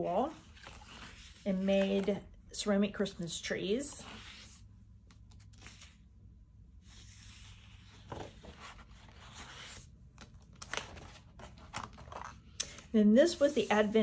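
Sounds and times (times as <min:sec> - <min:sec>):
pages turning: 0:00.4 - 0:02.2, 0:04.0 - 0:06.2, 0:06.9 - 0:12.8.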